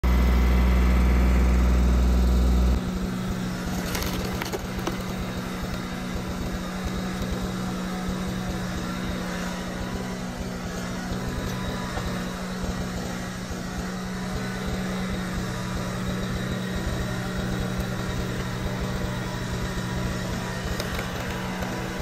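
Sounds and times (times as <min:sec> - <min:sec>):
loud low hum: 0:00.0 - 0:22.0
tractor diesel engine running: 0:00.0 - 0:22.0
wood cracking: 0:03.7 - 0:05.4, 0:20.6 - 0:21.7.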